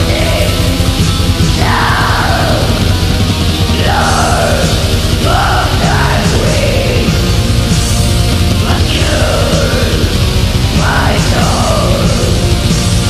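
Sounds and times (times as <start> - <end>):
harsh screamed vocals: 0.0 - 7.4, 8.6 - 12.5
distorted guitars and drums: 0.0 - 13.0.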